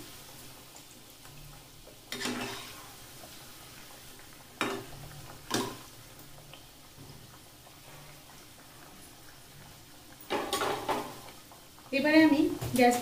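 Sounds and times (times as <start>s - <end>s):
faint oil sizzle: 0.0s - 13.0s.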